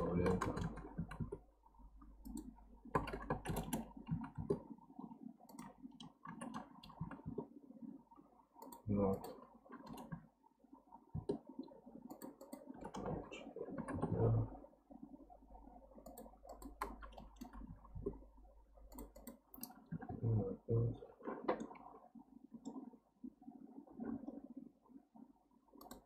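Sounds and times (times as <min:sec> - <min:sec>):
scroll-wheel ticks: 0:00.0 - 0:04.7, 0:05.4 - 0:07.5, 0:08.6 - 0:10.3, 0:12.0 - 0:13.2, 0:16.0 - 0:18.2, 0:18.8 - 0:19.8, 0:25.8 - 0:26.0
mouse clicks: 0:18.9 - 0:19.8, 0:25.8 - 0:26.0.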